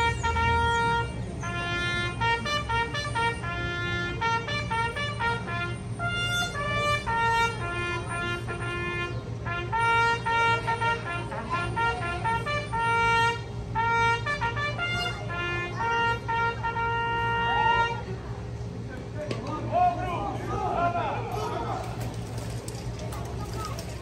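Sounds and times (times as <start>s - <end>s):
brass band playing: 0.0s - 18.2s.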